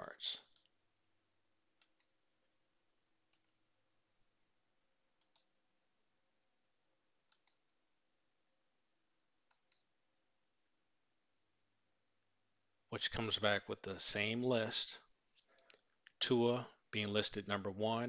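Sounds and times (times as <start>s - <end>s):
computer mouse clicks: 0.5s - 0.8s, 1.8s - 2.2s, 3.3s - 3.6s, 5.2s - 5.5s, 7.2s - 7.6s, 9.5s - 9.9s.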